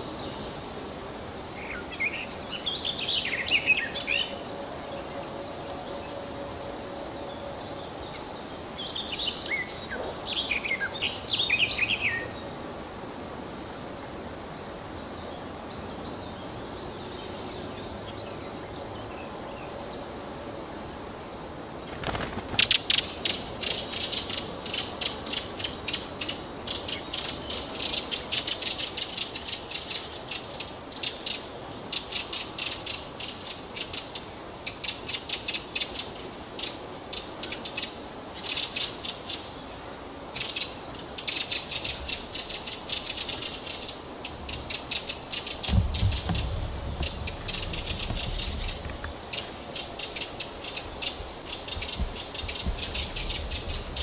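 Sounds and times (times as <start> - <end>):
bird rattling alarm call: 40.4 - 54.0.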